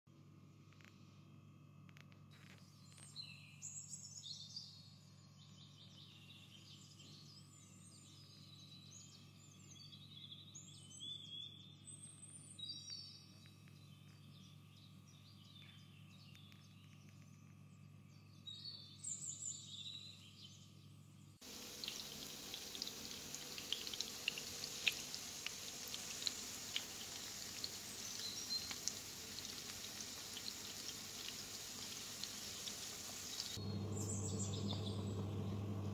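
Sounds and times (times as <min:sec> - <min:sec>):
hot oil sizzling and crackling: 0:21.4 - 0:34.8
birds chirping: 0:21.4 - 0:35.9.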